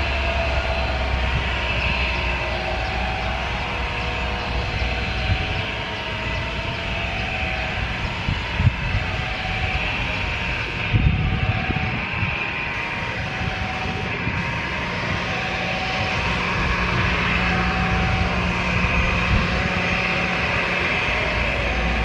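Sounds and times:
jet engine whine: 0.0 - 22.0
jet engines running: 0.0 - 22.0.

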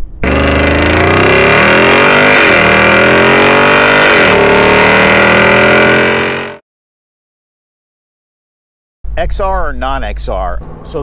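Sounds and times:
car engine exhaust accelerating: 0.0 - 6.6.

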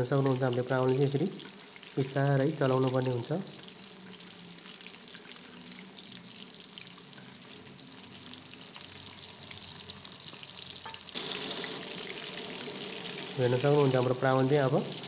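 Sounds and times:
prawns deep-frying in oil: 0.0 - 15.0.

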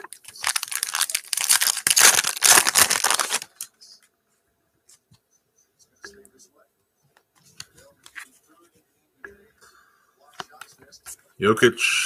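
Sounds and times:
foil wrapper crinkling: 0.0 - 3.7.

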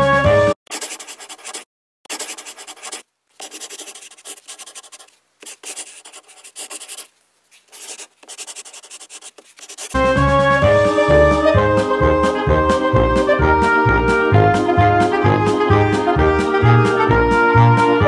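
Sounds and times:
marker scratching on paper: 0.7 - 10.0.

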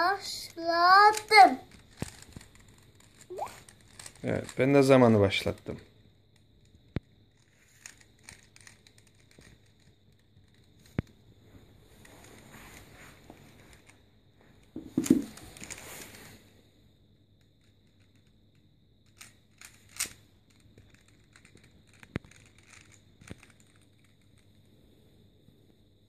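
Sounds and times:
plastic puzzle cube clicking: 1.1 - 4.6, 6.6 - 11.1, 19.0 - 24.4.

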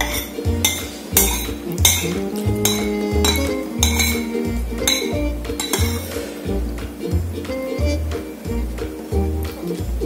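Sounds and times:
metal spoon scraping a bowl: 0.0 - 6.4
background music with beat: 0.0 - 10.0.

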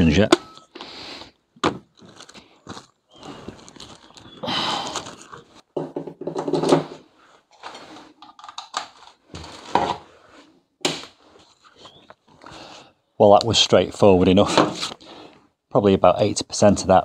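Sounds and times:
plastic clattering on worktop: 5.8 - 7.0, 7.6 - 10.0.

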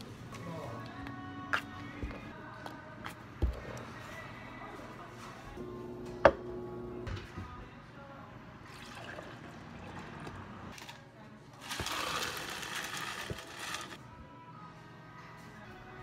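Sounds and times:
liquid pouring into cup: 8.7 - 10.4.

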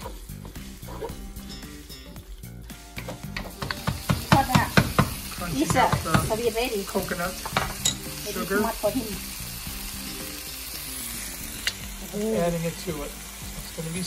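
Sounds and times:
sauce sizzling: 0.0 - 14.0
wooden spoon knocking against pan: 3.0 - 6.6, 7.4 - 8.0.

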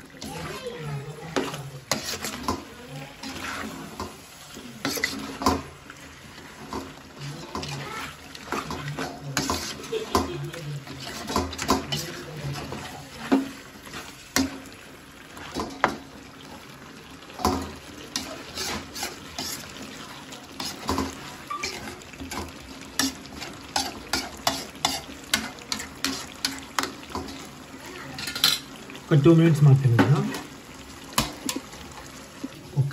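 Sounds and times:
pan sizzling: 0.0 - 32.9
metal spatula scraping a pan: 0.2 - 14.8, 17.4 - 28.7.

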